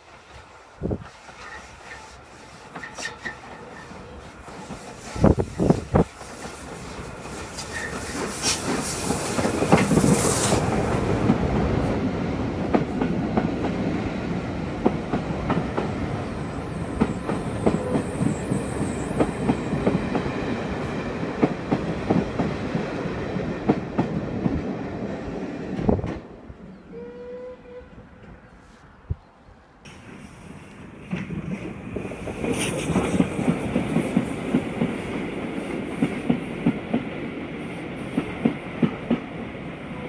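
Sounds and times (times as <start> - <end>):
steam locomotive passing: 0.0 - 40.0
wheels clicking over rail joints: 1.0 - 10.2.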